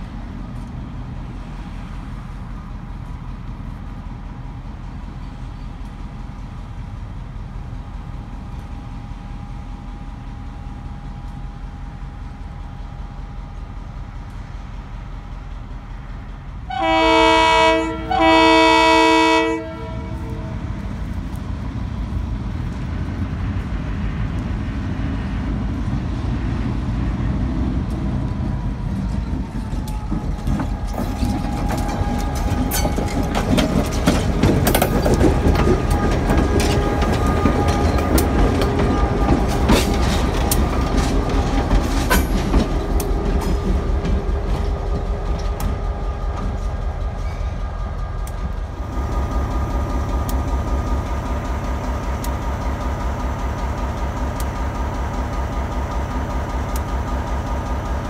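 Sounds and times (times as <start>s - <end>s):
locomotive engine rumble: 0.0s - 58.0s
train wheels clicking on rails: 0.0s - 58.0s
locomotive air horn blasts: 16.7s - 20.7s.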